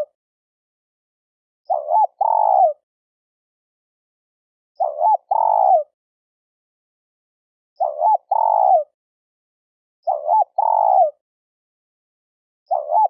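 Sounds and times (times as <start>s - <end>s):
dove cooing: 1.7s - 2.8s, 4.8s - 5.9s, 7.8s - 8.9s, 10.0s - 11.2s, 12.7s - 13.0s.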